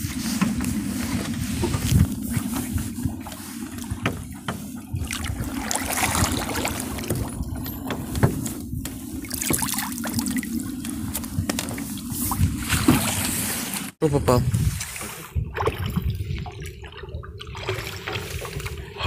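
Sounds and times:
water splashing and trickling: 0.2s - 19.0s
knocks against boat: 7.0s - 9.7s.

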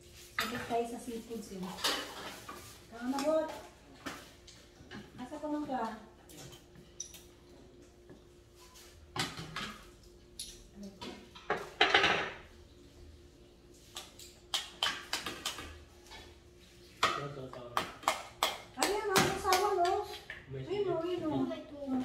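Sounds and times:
dishes and utensils clattering: 1.6s - 2.8s, 8.8s - 12.5s.

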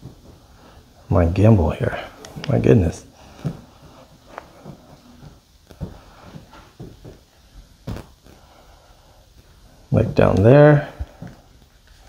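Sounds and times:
footsteps on hard floor: 0.0s - 0.6s, 3.2s - 8.4s.

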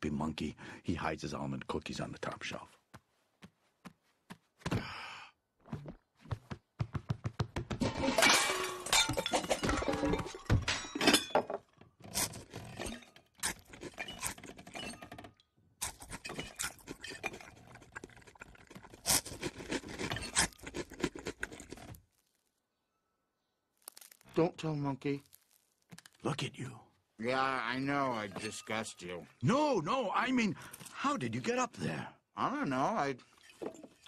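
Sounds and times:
crockery clinking: 7.8s - 11.8s, 27.8s - 29.3s.

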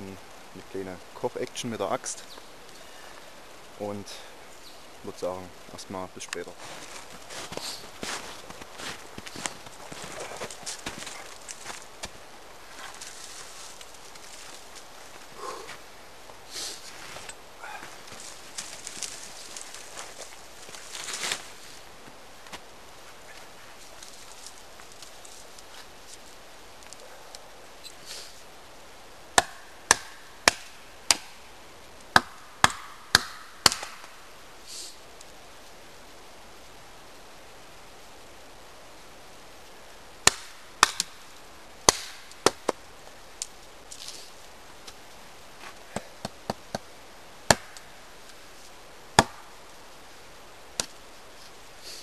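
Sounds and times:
axe chopping tree trunk: 29.4s - 31.4s, 32.1s - 34.2s, 40.2s - 41.1s, 41.9s - 42.8s, 47.5s - 47.8s, 49.2s - 49.4s.

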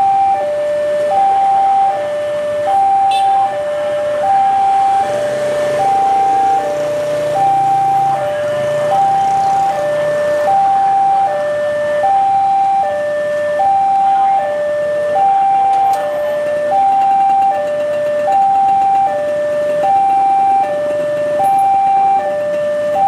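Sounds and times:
level crossing two-tone alarm: 0.0s - 23.0s.

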